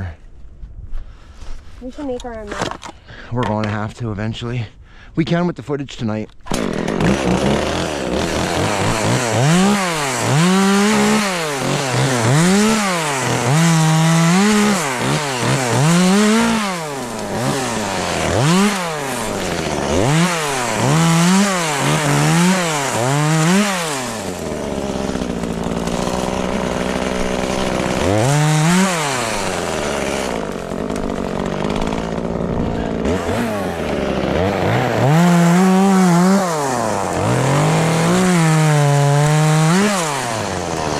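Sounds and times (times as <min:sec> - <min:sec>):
chainsaw revving: 0:06.4 - 0:40.9.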